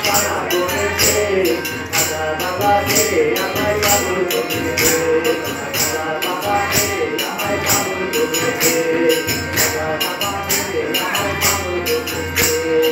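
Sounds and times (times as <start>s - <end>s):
harmonium: 0.0s - 12.9s
men singing: 0.0s - 12.9s
tabla: 0.0s - 12.9s
hand-clapping: 8.4s - 9.9s.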